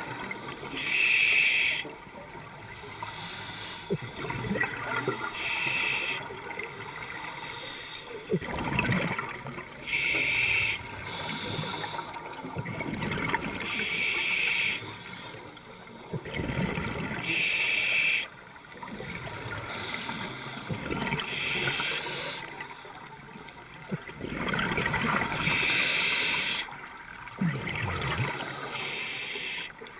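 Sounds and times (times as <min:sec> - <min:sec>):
hissing regulator inhale: 0:00.7 - 0:01.9, 0:03.0 - 0:04.0, 0:05.3 - 0:06.3, 0:07.3 - 0:08.2, 0:09.9 - 0:12.2, 0:13.7 - 0:15.5, 0:17.2 - 0:18.3, 0:19.7 - 0:22.5, 0:25.4 - 0:26.7, 0:28.4 - 0:29.7
gurgling exhaled bubbles: 0:08.3 - 0:09.7, 0:16.2 - 0:17.2.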